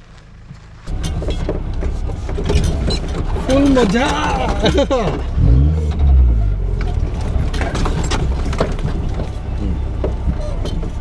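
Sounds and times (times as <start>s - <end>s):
vehicle knocks and clatters: 0.3s - 11.0s
off-road engine revving: 0.9s - 11.0s.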